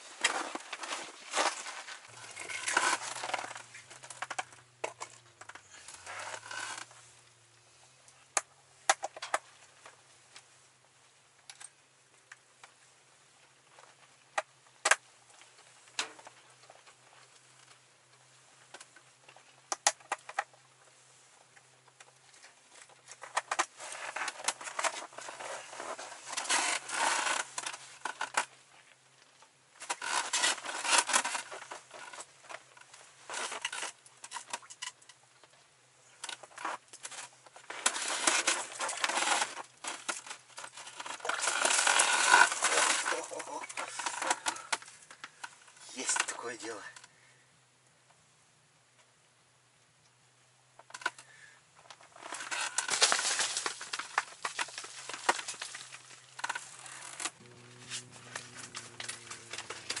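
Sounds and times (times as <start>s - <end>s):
clothing rustling: 0.0s - 7.3s, 22.2s - 28.2s.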